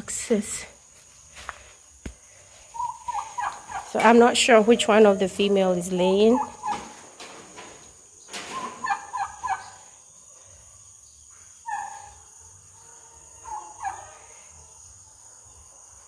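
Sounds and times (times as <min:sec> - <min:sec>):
turkeys calling: 0:02.6 - 0:05.2, 0:06.2 - 0:07.1, 0:08.4 - 0:10.0, 0:11.6 - 0:12.2, 0:13.4 - 0:14.2.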